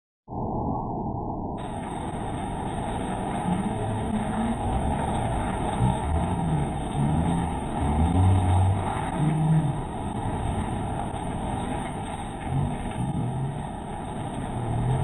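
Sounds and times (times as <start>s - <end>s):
car engines: 1.6s - 15.0s
rush of water: 1.6s - 15.0s.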